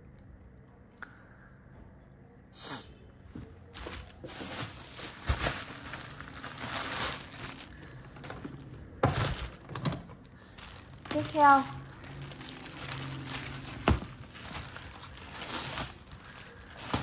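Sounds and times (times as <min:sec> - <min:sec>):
paper and suede rustling: 0:03.4 - 0:09.6, 0:10.6 - 0:17.0.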